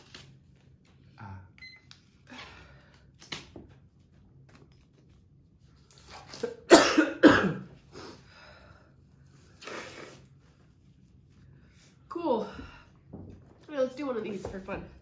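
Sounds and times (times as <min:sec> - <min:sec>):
person coughing: 0:06.4 - 0:07.8.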